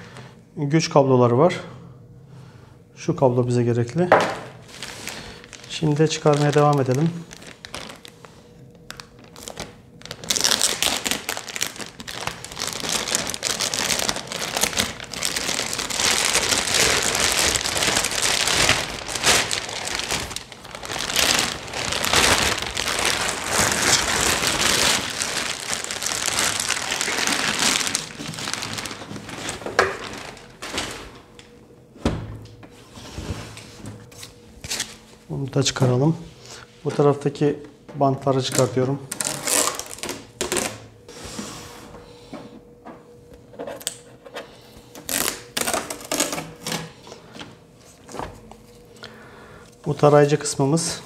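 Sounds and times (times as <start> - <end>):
plastic bag crinkling: 4.5 - 31.4, 38.4 - 40.9, 44.9 - 46.8.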